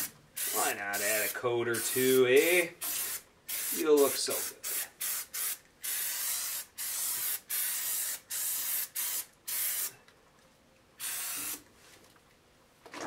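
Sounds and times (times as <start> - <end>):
aerosol spray hissing: 0.4 - 9.9, 11.0 - 11.6.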